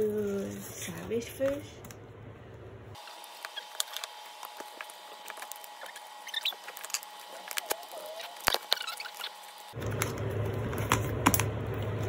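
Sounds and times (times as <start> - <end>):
plastic shrink wrap crinkling: 3.0 - 12.0.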